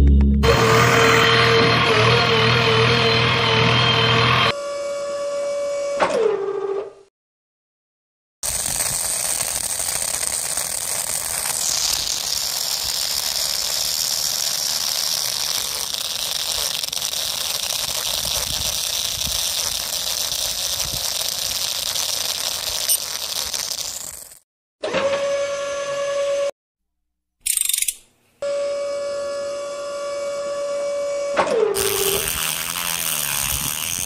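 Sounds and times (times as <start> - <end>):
small motor whine: 0.4 - 6.0, 8.4 - 24.4, 28.4 - 34.0
drill bit grinding into sand: 8.4 - 24.4, 31.8 - 34.0.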